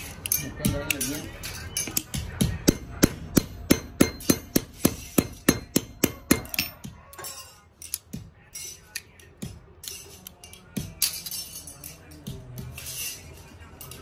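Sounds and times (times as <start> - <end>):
hammer striking metal on anvil: 1.8 - 6.9
light metal clinks: 5.2 - 14.0.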